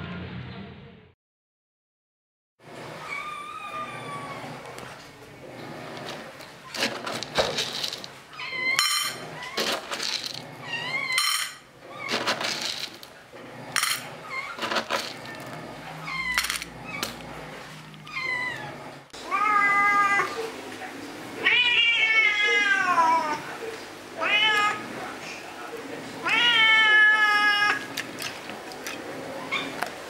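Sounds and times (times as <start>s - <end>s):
cat meowing: 3.0s - 4.6s, 8.3s - 9.6s, 16.0s - 17.0s, 18.0s - 20.4s, 21.4s - 23.4s, 24.2s - 24.9s, 26.2s - 27.9s
kibble scooped into metal bowl: 6.8s - 8.2s, 12.1s - 13.1s, 14.6s - 15.5s.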